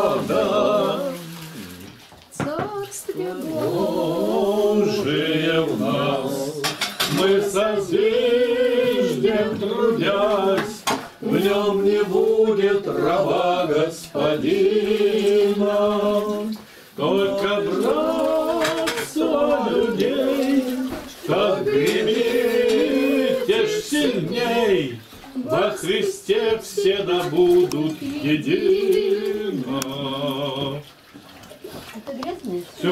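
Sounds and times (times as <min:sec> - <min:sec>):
voices singing slowly: 0:00.0 - 0:02.0, 0:03.1 - 0:30.9
dishes and cutlery clattering: 0:06.6 - 0:07.5, 0:18.5 - 0:19.2.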